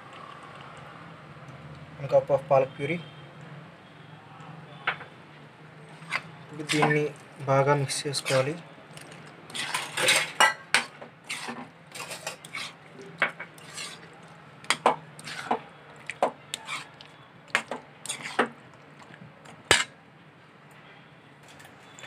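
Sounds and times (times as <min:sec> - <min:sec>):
metal spoon scraping a metal pot: 0:05.9 - 0:07.1, 0:08.1 - 0:08.6, 0:09.5 - 0:12.8, 0:13.6 - 0:14.1, 0:14.7 - 0:15.6, 0:16.5 - 0:17.0, 0:17.6 - 0:18.5, 0:19.7 - 0:19.9.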